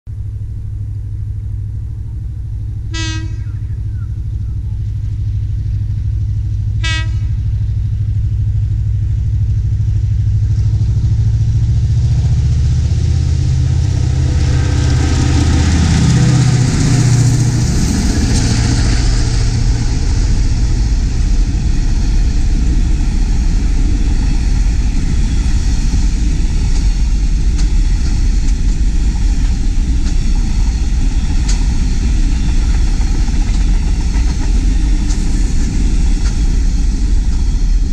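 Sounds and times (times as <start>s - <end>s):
locomotive engine drone: 0.1s - 37.9s
wagon wheels rumbling on rail: 0.2s - 37.9s
train horn toots: 2.9s - 4.1s, 6.7s - 7.6s.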